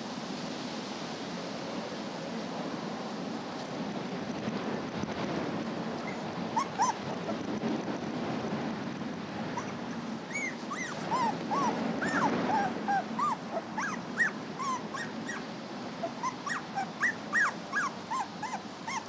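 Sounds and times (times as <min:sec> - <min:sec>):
puppies whimpering: 0:06.0 - 0:07.5, 0:09.5 - 0:19.0.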